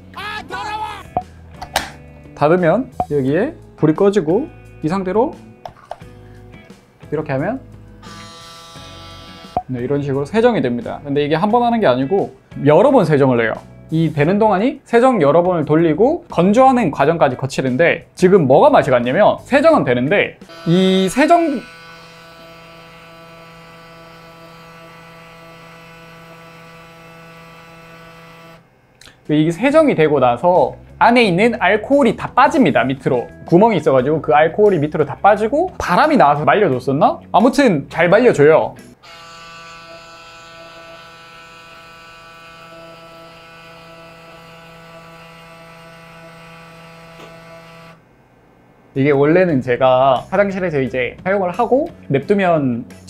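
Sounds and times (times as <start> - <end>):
electric shaver buzzing: 7.9 - 9.7, 20.4 - 28.7, 39.0 - 48.0.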